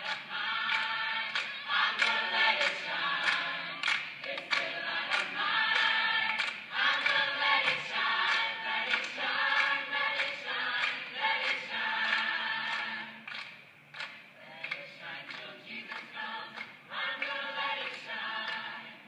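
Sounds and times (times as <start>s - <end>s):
choir singing over a beat: 0.0s - 19.0s.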